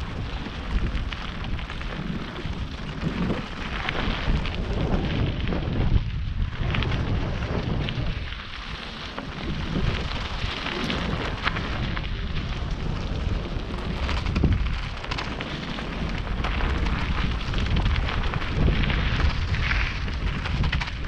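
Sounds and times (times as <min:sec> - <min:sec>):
wind buffeting microphone: 0:00.0 - 0:21.0.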